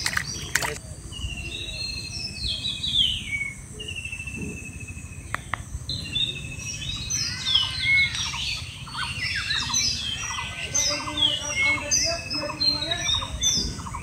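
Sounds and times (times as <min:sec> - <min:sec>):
bird chattering trill: 0:03.8 - 0:14.0.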